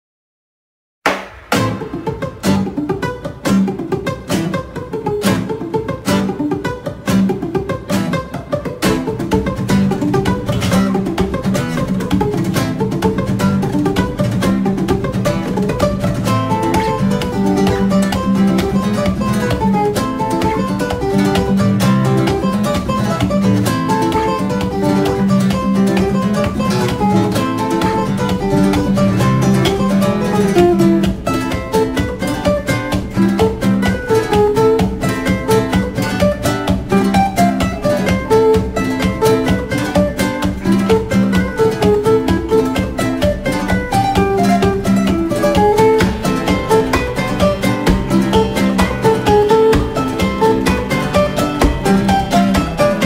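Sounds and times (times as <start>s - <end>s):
acoustic guitar plucked notes: 1.1s - 53.0s.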